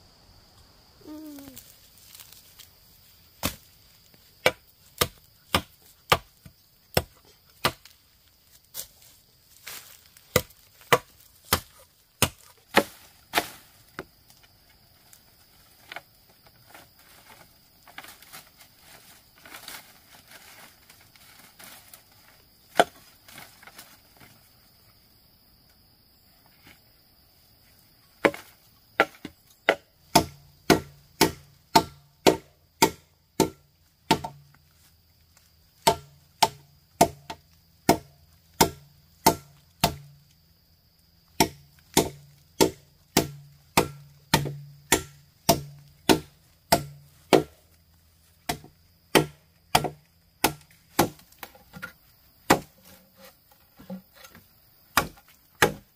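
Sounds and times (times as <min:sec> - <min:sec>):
blade chopping wood: 0:03.4 - 0:03.7, 0:04.4 - 0:08.0, 0:10.1 - 0:13.6, 0:28.2 - 0:34.5, 0:35.8 - 0:40.2, 0:41.4 - 0:47.6, 0:48.4 - 0:53.0, 0:53.8 - 0:55.9.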